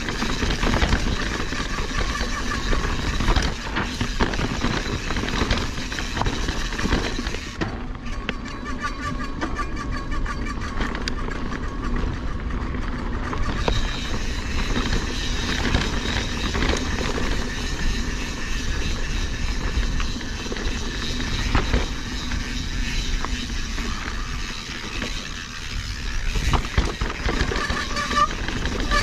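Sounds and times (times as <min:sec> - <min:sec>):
bike rattling over rock: 0:00.0 - 0:29.0.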